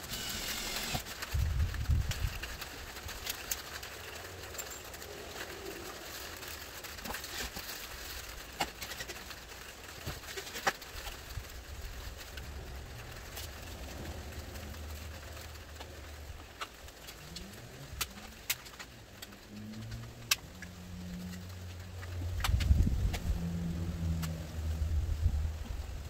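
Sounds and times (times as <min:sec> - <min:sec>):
bird cooing: 0:05.0 - 0:06.2.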